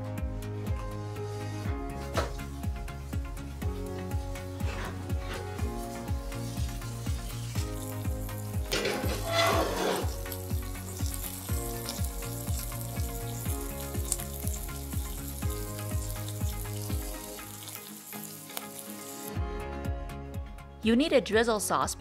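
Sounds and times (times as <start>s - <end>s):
background music with steady beat: 0.0s - 22.0s
pizza sizzling in skillet: 2.2s - 19.4s.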